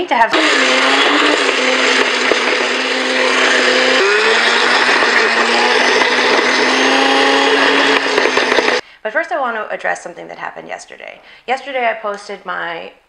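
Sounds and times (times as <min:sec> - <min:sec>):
blender motor running: 0:00.3 - 0:08.8.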